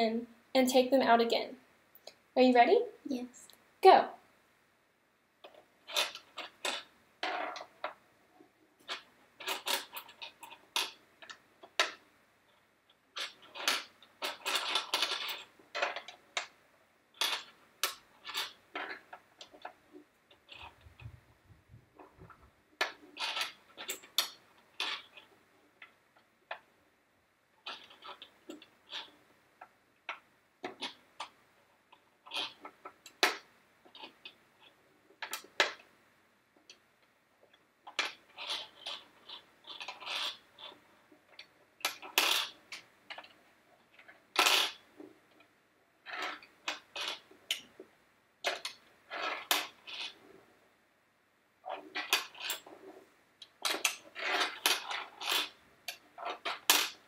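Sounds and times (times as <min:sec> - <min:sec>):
plastic pegs clicking and clattering: 0:13.2 - 0:16.6, 0:17.2 - 0:21.2, 0:48.4 - 0:50.2, 0:53.4 - 0:57.0.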